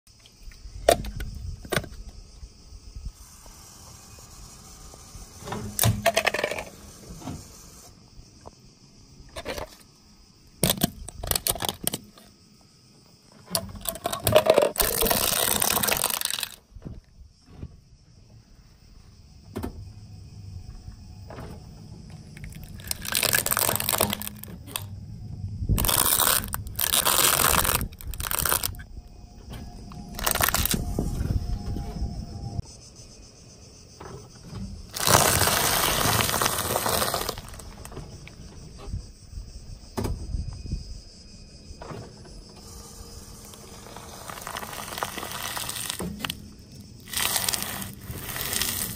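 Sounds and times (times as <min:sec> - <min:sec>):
plastic cracking and crunching: 0:10.6 - 0:12.3, 0:13.5 - 0:16.6, 0:22.4 - 0:24.9, 0:25.8 - 0:28.8, 0:30.1 - 0:30.9, 0:34.9 - 0:38.0, 0:43.7 - 0:46.4, 0:47.0 - 0:48.9
low car rumble: 0:19.2 - 0:32.8.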